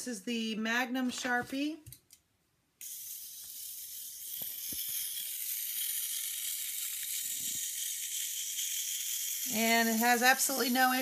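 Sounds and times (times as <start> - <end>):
toy motor and gears whirring: 2.8 - 11.0.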